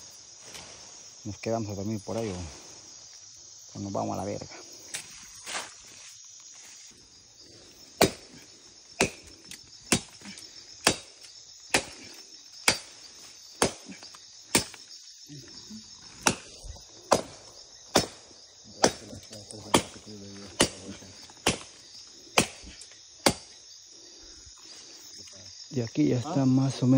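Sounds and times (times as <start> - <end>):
insects shrilling: 0.0 - 26.9
machete chopping wood: 8.0 - 8.4, 9.0 - 14.9, 16.2 - 23.6.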